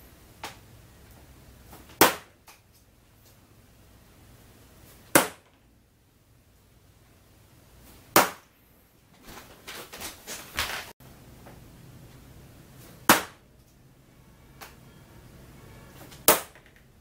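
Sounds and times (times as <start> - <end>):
darts hitting electronic dartboard: 1.7 - 2.6, 5.0 - 5.6, 8.1 - 8.5, 12.8 - 13.5, 16.0 - 16.9.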